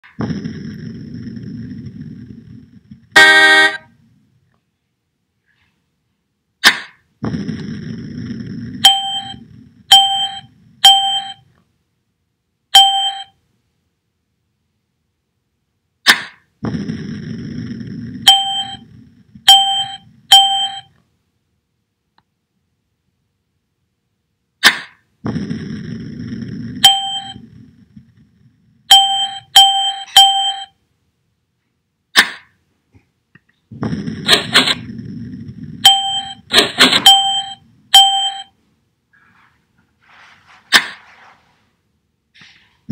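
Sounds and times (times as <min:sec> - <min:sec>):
cartoon burst effect: 0:16.1 - 0:16.4, 0:33.8 - 0:34.9, 0:35.8 - 0:38.1.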